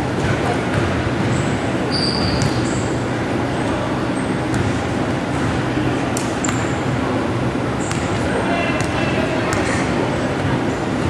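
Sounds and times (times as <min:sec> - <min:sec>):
gym crowd din: 0:00.0 - 0:11.0
shoe squeaks: 0:01.3 - 0:03.0.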